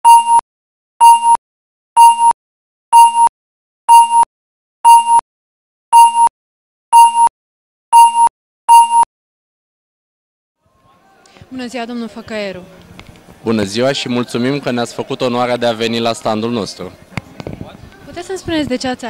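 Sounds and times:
short electronic beeps: 0.1 - 0.4, 1.0 - 1.4, 2.0 - 3.3, 3.9 - 5.2, 5.9 - 6.3, 6.9 - 7.3, 7.9 - 9.1.

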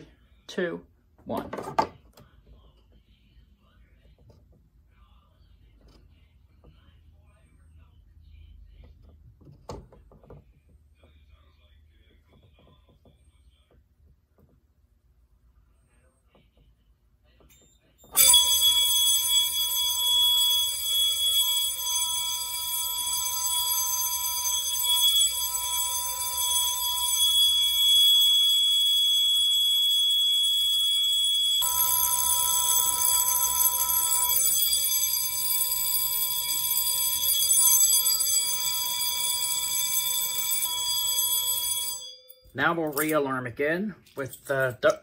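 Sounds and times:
electronic alarm tone: 18.1 - 42.3.

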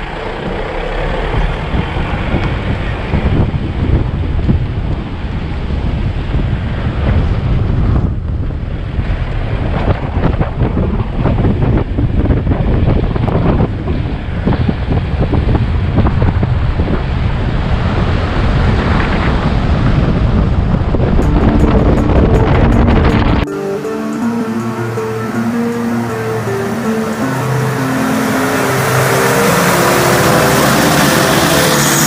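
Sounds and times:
wind buffeting microphone: 0.0 - 23.5
vehicle rumble: 0.0 - 32.0.

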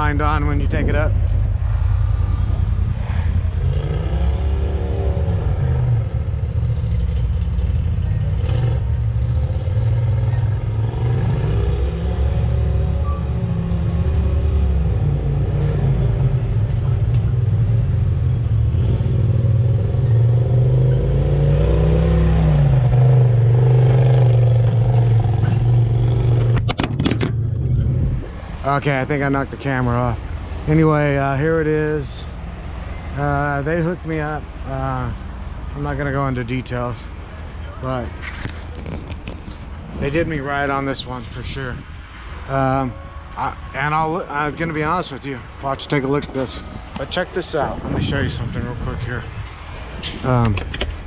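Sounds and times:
utility vehicle engine revving: 3.5 - 28.6
clatter of knocks: 26.6 - 27.4.

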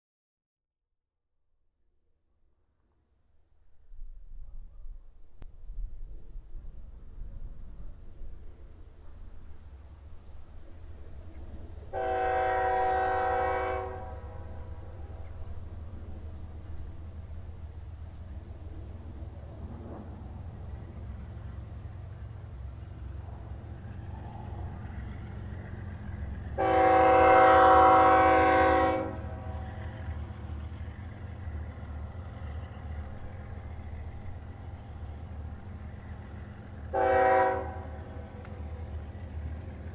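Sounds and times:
insects chirping: 2.2 - 39.9
diesel locomotive engine rumble: 3.8 - 39.9
locomotive air horn: 11.9 - 15.0, 26.6 - 30.0, 36.9 - 38.5.

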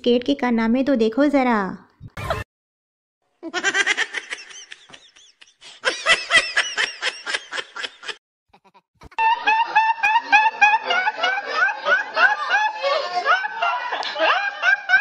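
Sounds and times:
person giggling and snickering: 2.1 - 2.4, 3.4 - 13.5
rhythmic laughter: 3.5 - 15.0.

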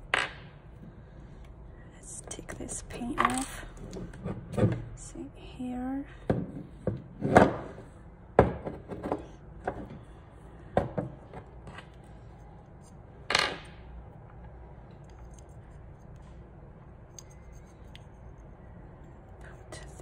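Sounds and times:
small metal parts clicking: 17.1 - 18.1.

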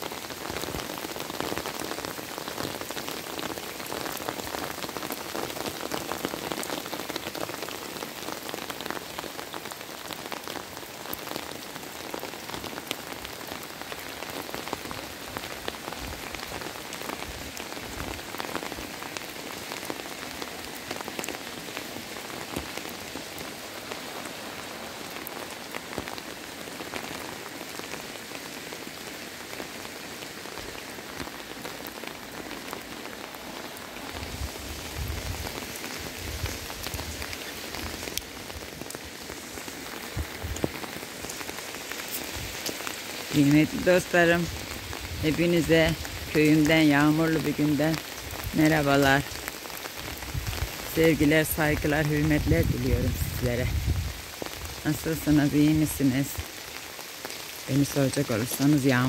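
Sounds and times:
rain hissing on road: 0.0 - 59.0
raindrop taps: 40.0 - 42.9.

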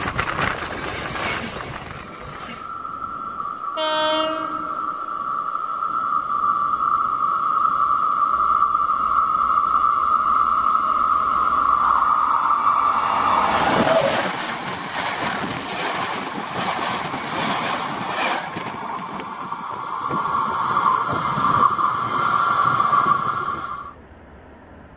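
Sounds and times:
locomotive high tone dropping in pitch: 2.2 - 14.5
train wheels clattering over rails: 13.6 - 23.0.

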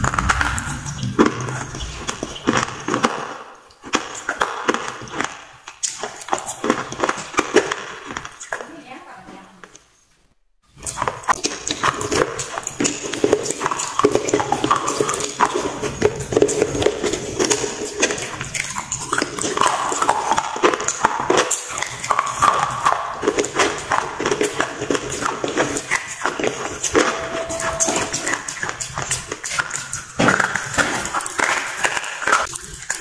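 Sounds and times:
crunching and chewing: 3.8 - 8.6, 10.8 - 26.9, 28.6 - 33.0.

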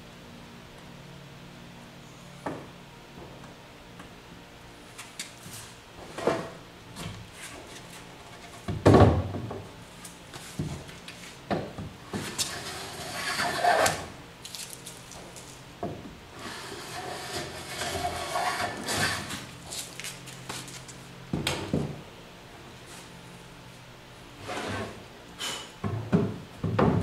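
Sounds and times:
wood sliding over bench: 12.1 - 14.1, 16.4 - 19.5, 24.4 - 25.7
wooden boards knocking on bench: 25.8 - 27.0.

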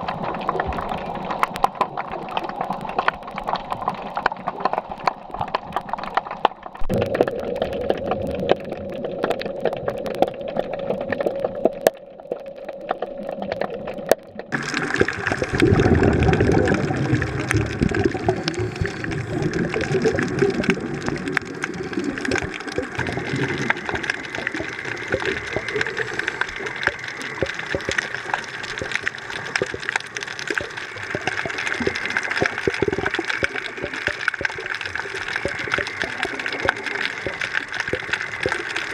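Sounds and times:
underwater crackling clicks: 0.0 - 38.9
watery hiss: 14.6 - 38.9.

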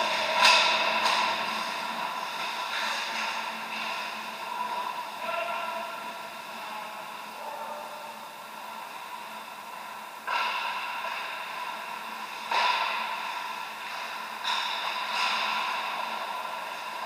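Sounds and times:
skate blades scraping ice: 0.0 - 4.2, 12.2 - 17.0.

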